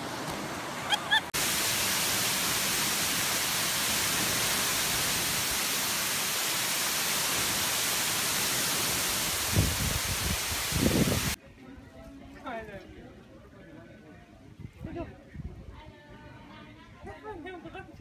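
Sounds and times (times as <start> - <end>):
waterfall rushing into pool: 0.0 - 11.4.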